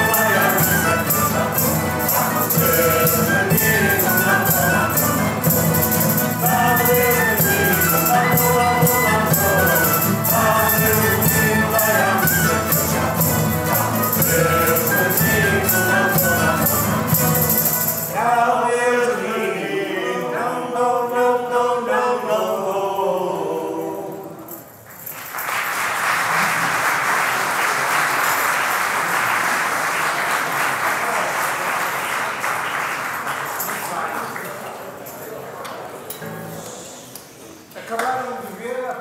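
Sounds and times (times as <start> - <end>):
accordion: 0.0 - 18.0
mandolins: 0.0 - 18.2
folk choir singing: 0.0 - 24.6
acoustic guitars: 0.0 - 37.8
audience applauding: 24.9 - 34.9.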